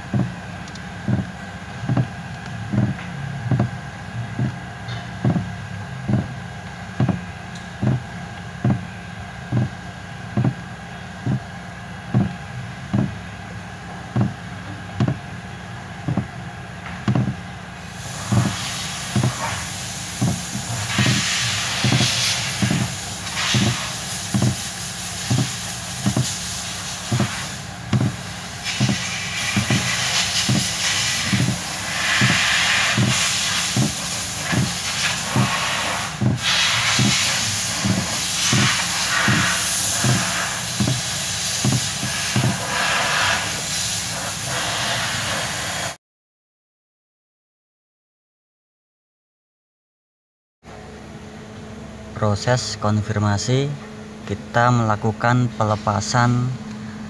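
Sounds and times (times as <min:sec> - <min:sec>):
steady hiss: 0:17.8 - 0:46.0.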